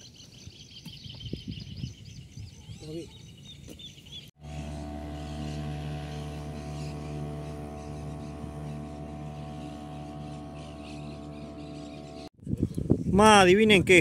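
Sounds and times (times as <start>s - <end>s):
birds and insects chirping: 0.0s - 12.3s
low hum with even tones: 4.4s - 12.3s.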